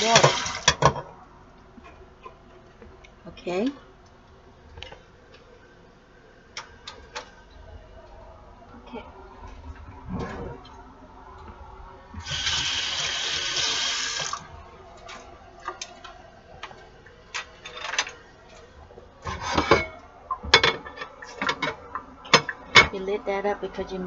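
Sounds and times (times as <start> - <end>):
kitchen tap running: 0.0 - 0.8, 12.2 - 14.5
dishes clicking and knocking: 0.1 - 1.1, 19.5 - 23.0.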